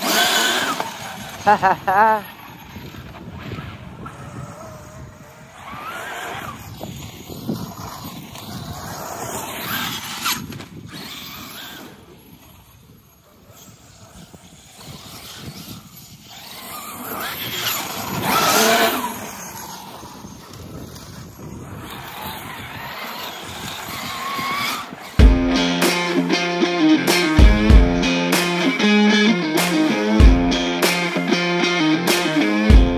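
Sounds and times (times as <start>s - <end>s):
tyres on loose gravel: 0.0s - 25.2s.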